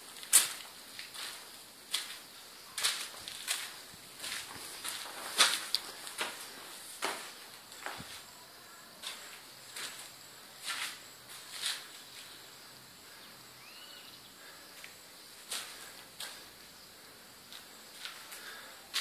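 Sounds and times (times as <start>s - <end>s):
footsteps scuffing on concrete: 0.0s - 8.4s, 9.0s - 12.4s, 14.8s - 16.6s, 17.4s - 19.0s
background hiss: 0.0s - 19.0s.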